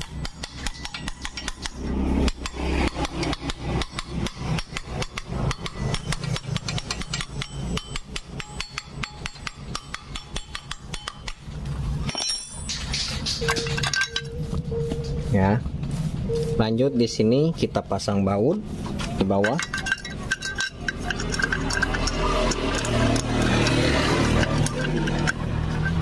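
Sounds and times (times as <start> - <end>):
metallic clicking of clutch: 0.0 - 14.4, 18.8 - 26.0.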